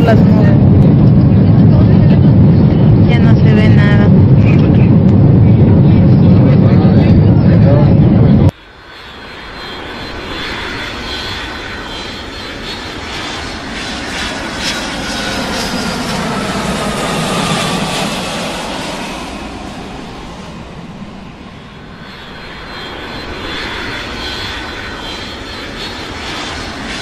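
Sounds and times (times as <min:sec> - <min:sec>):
faint falling engine whine: 0:00.0 - 0:27.0
jet airliner engine noise: 0:00.0 - 0:27.0.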